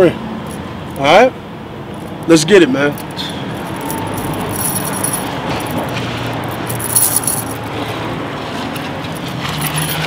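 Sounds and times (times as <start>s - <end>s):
steady background noise: 0.0s - 10.0s
metal chain clinking and jangling: 2.9s - 8.0s, 8.8s - 10.0s.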